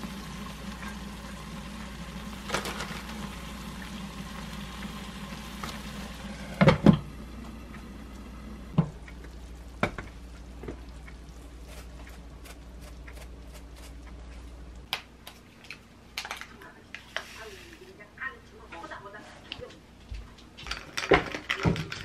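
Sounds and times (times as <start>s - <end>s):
pasta sizzling in a frying pan: 0.0s - 14.4s.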